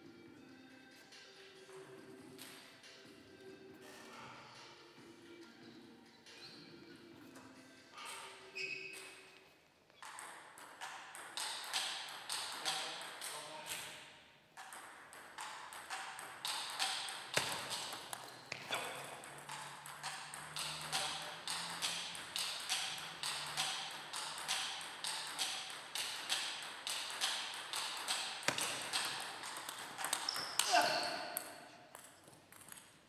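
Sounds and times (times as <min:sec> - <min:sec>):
table tennis ball clicking: 0:10.0 - 0:13.3, 0:14.6 - 0:30.7.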